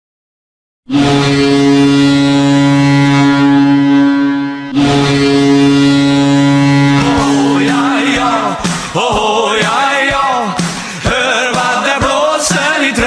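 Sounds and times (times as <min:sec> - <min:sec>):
goal horn blast: 0:00.9 - 0:08.9.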